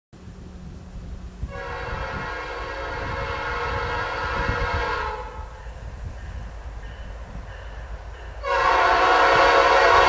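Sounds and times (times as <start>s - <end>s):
low train rumble: 0.2s - 10.0s
train air horn chord: 1.5s - 5.6s, 8.4s - 10.0s.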